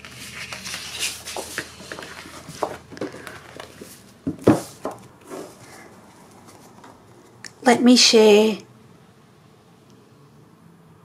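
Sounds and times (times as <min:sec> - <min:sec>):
paper rustling and crackling: 0:00.0 - 0:07.0.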